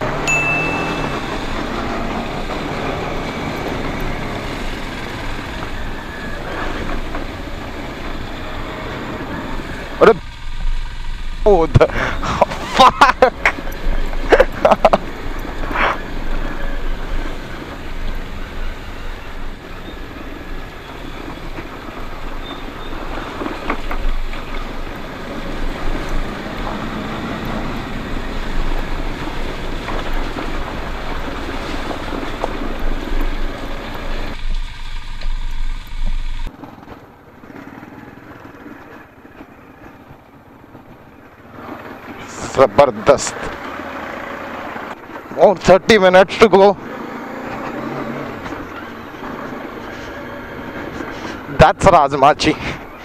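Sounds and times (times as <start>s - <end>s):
motorcycle engine: 0.0s - 53.0s
knocks and rattles over rocks: 21.4s - 43.8s.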